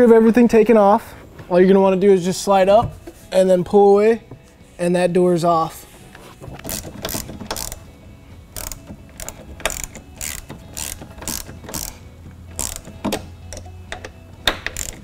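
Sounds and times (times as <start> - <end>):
ratchet wrench clicking: 6.6 - 7.8, 8.5 - 15.0.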